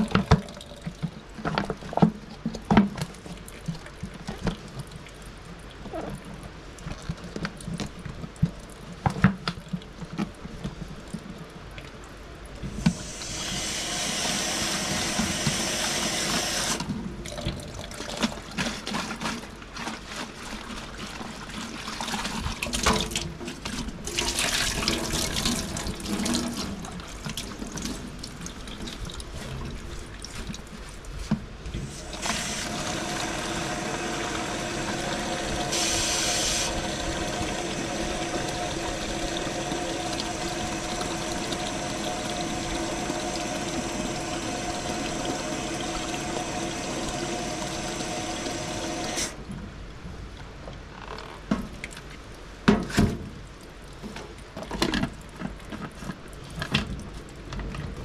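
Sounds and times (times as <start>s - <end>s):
water running: 12.5s - 23.3s, 31.8s - 49.4s
clicks and knocks of handling: 54.0s - 58.0s.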